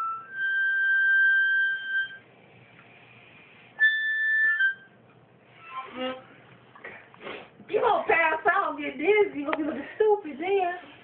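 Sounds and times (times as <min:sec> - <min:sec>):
whistling into cupped hands: 0:00.0 - 0:02.2, 0:03.8 - 0:05.0.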